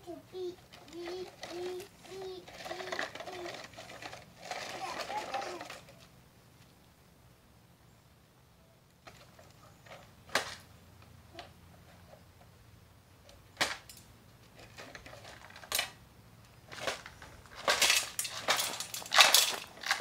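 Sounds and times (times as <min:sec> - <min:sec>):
toy excavator clacks: 0:00.7 - 0:06.0, 0:16.7 - 0:20.0
scraping and rattling stones: 0:16.7 - 0:20.0.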